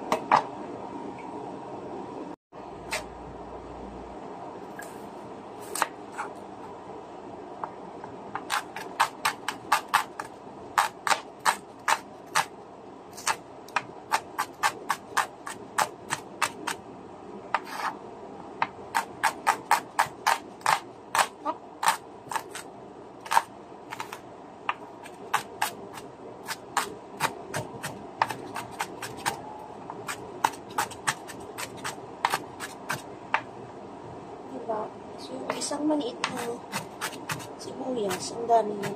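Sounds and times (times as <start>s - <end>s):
knife chopping on cutting board: 19.0s - 22.6s, 26.4s - 29.4s, 30.1s - 33.0s, 36.2s - 37.5s.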